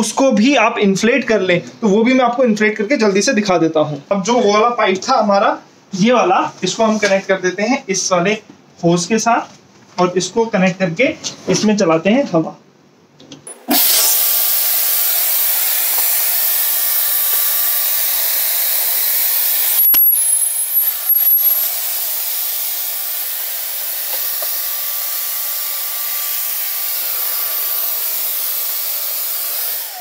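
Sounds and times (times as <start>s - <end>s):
air blower pump running: 13.5s - 30.0s
air rushing through hose: 13.5s - 30.0s.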